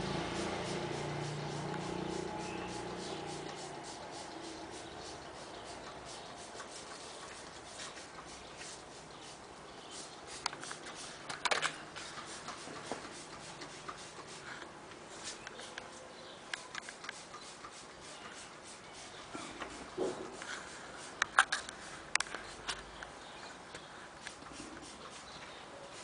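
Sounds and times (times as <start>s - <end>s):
spray bottle squirts: 0.2s - 14.5s, 16.5s - 22.6s, 24.2s - 26.0s.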